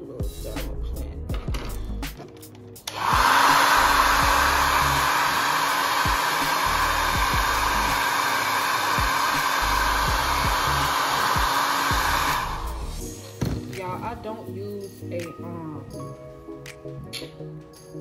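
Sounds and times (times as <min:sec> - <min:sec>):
hair dryer blowing: 0:02.8 - 0:13.7.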